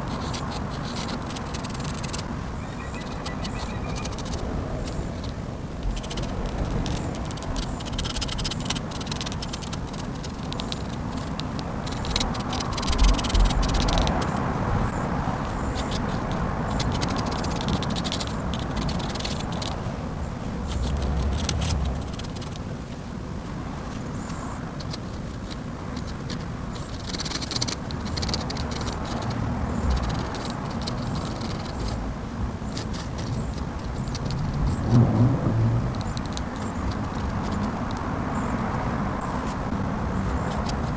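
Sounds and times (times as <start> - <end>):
pen scratching on paper: 0.0 - 14.4, 15.4 - 19.8, 20.6 - 22.6, 24.8 - 32.0, 32.7 - 35.0, 35.9 - 38.0
low background rumble: 0.0 - 40.9.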